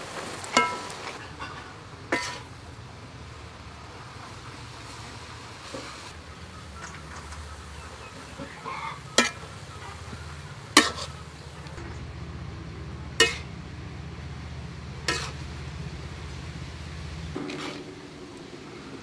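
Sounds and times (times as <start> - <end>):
utensil clanking on wok: 0.5 - 2.6, 8.2 - 12.2, 12.9 - 13.7, 14.3 - 17.9
utensil tossing noodles in wok: 2.1 - 2.6, 8.2 - 11.5, 13.2 - 13.5, 15.0 - 15.7
low rumble: 11.8 - 19.0.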